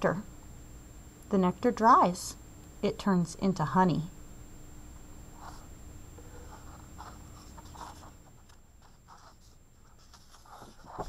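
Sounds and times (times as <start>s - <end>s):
paper pages rustling: 6.3s - 11.0s.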